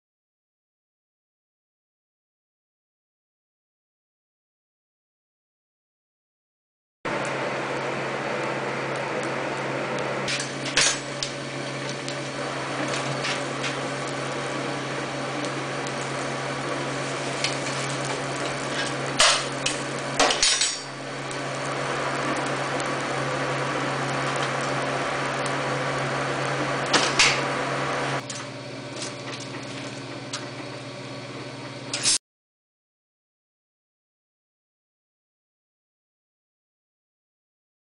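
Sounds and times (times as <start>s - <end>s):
forge air blower humming: 7.1s - 32.2s.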